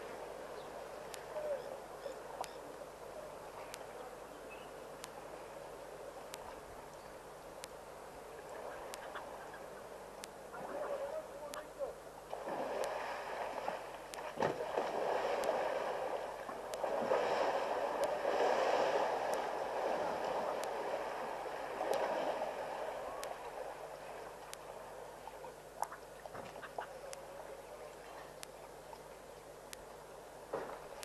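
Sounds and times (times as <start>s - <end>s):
muddy water sloshing and splashing: 12.3s - 24.8s.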